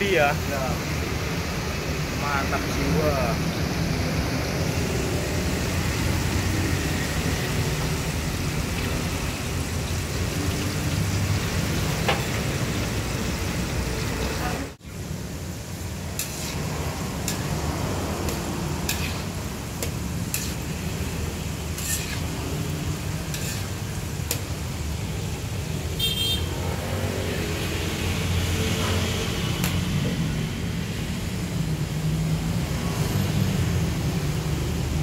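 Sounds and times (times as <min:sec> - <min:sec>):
deep-frying in bubbling oil: 0:00.0 - 0:35.0
short high horn toot: 0:26.0 - 0:26.5.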